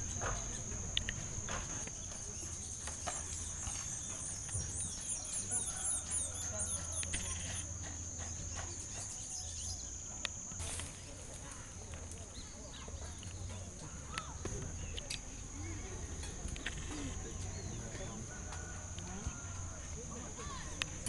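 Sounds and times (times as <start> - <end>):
birds chirping: 0.0 - 10.4, 11.0 - 18.7
faint distant voices: 0.0 - 21.0
high-pitched insect buzz: 0.1 - 11.0.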